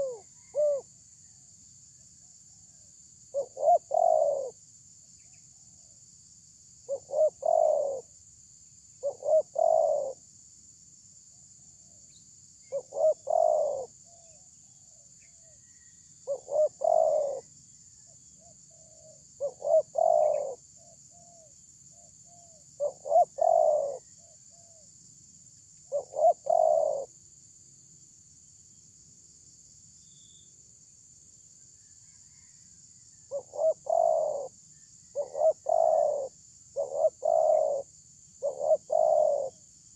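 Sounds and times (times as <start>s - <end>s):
dove cooing: 0.0s - 0.9s, 3.3s - 4.6s, 6.9s - 8.1s, 9.0s - 10.2s, 12.7s - 14.4s, 15.7s - 17.5s, 18.4s - 21.5s, 22.3s - 24.9s, 25.9s - 27.1s, 32.3s - 32.6s, 33.3s - 39.6s.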